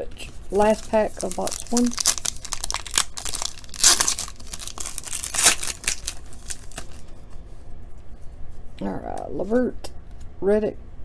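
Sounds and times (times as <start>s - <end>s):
foil wrapper tearing and crinkling: 0.5s - 7.0s.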